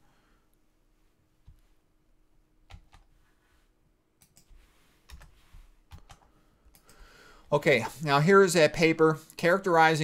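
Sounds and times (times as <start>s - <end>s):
computer mouse clicks: 4.2s - 7.0s.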